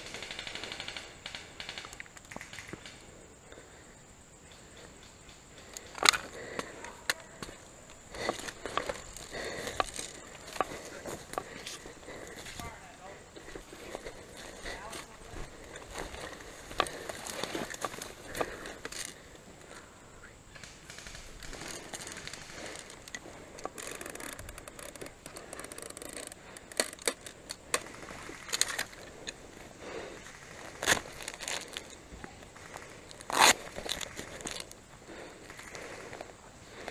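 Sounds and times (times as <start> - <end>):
sharp clicks: 0.0 - 3.1
clothing rustling against tree: 5.2 - 36.9
twigs snapping: 5.3 - 12.6, 13.4 - 19.2, 20.6 - 29.4, 30.2 - 32.0, 32.6 - 34.8.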